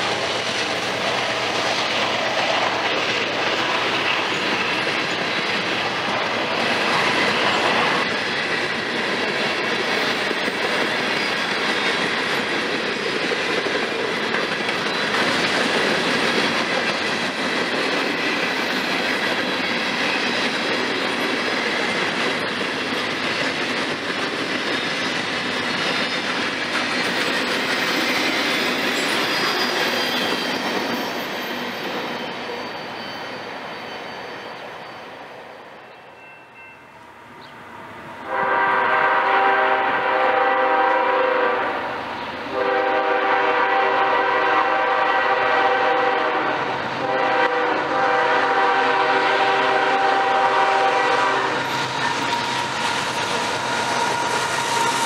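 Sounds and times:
freight cars rolling on rails: 0.0 - 55.0
locomotive air horn: 38.2 - 51.9.

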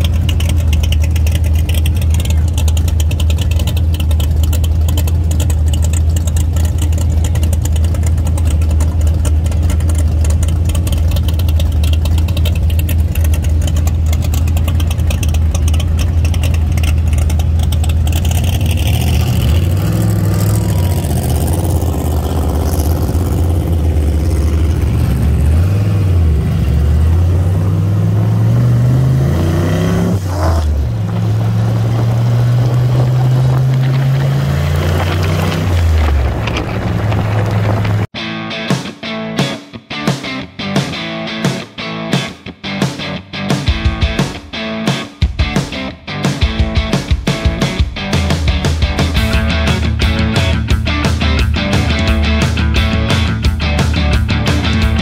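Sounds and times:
car engine idling: 0.0 - 28.5, 30.7 - 38.1
car engine revving and accelerating: 0.0 - 38.1.

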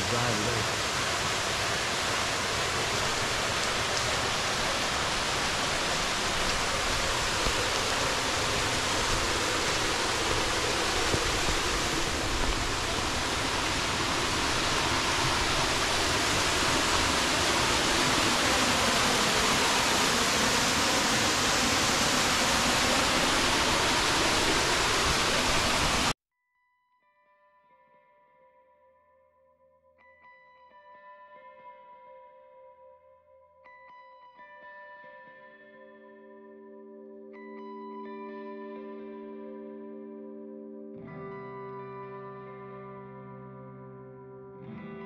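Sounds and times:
waterfall rushing: 0.0 - 26.2.

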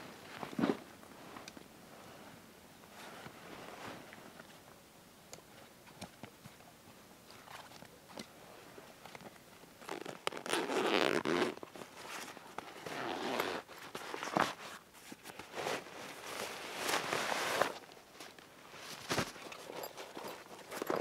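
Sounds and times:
zipper rasping open: 9.8 - 14.4
fabric rustling: 9.8 - 21.0.

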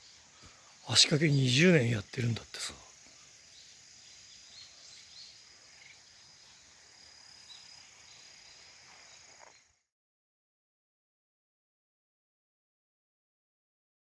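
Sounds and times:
insects chirring: 0.0 - 9.9.

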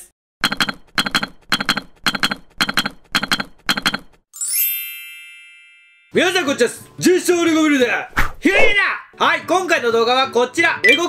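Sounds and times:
bright chime ringing: 4.4 - 6.2.

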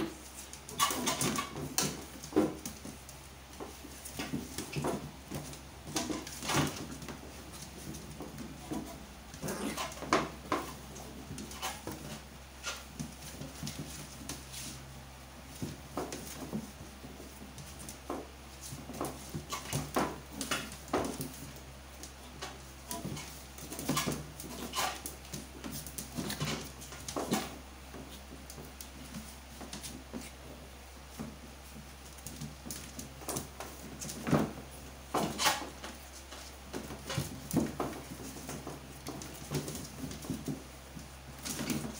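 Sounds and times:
dogs scuffling on floor: 0.0 - 41.9
small dogs growling and yipping: 9.4 - 10.0.

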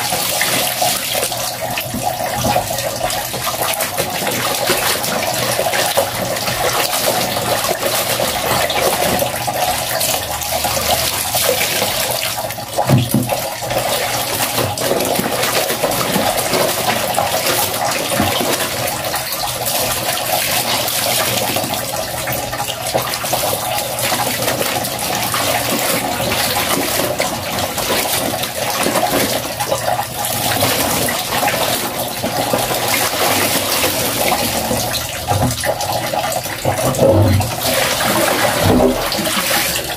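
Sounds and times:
water sloshing with wet fabric: 0.0 - 39.9.

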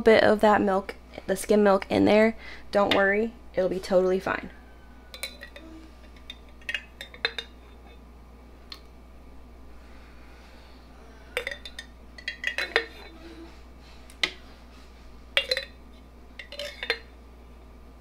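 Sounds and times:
spoon clinking against glass jar: 5.1 - 8.0, 11.4 - 13.3, 15.4 - 15.8, 16.4 - 17.1
spoon knocking plastic bowl: 11.4 - 13.1.

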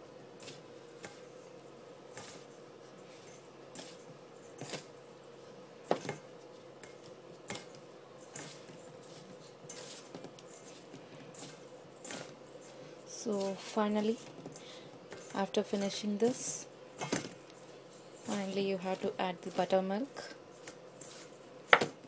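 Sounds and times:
faint steady hum: 0.0 - 22.0
hands rustling in bowl: 6.4 - 16.6, 17.4 - 21.5.

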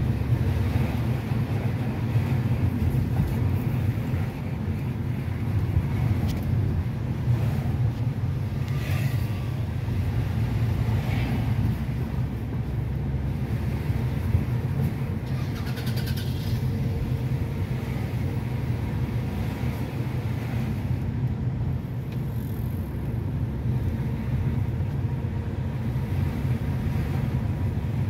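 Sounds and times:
road and engine rumble inside car: 0.0 - 28.0
passing traffic hisses: 8.4 - 12.3, 15.2 - 21.0.

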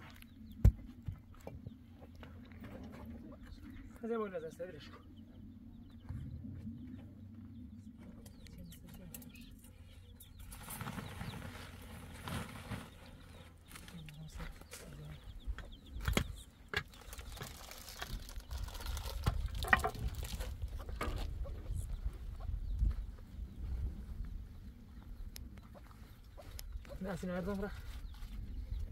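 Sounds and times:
scraping and shuffling of soil: 9.0 - 15.3, 16.0 - 22.2.

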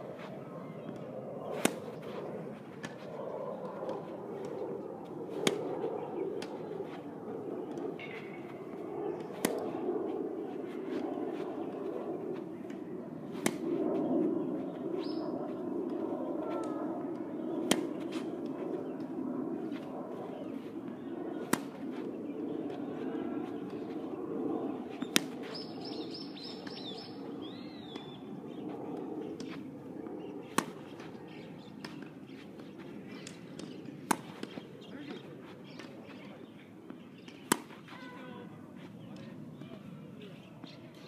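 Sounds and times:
distant voices murmuring: 0.0 - 41.0
tennis ball bouncing: 0.8 - 2.2, 5.3 - 7.0, 7.7 - 9.8, 10.5 - 13.8, 17.6 - 20.7, 21.4 - 22.2, 24.9 - 25.7, 29.0 - 29.6, 30.4 - 36.2, 36.9 - 38.2
tennis ball struck by racket: 1.5 - 2.2, 5.3 - 5.6, 9.2 - 9.8, 12.3 - 13.7, 17.6 - 18.3, 21.4 - 22.2, 25.0 - 25.6, 29.4 - 29.6, 30.4 - 31.1, 31.8 - 35.9, 37.2 - 38.1
bird chirping: 15.0 - 15.3.

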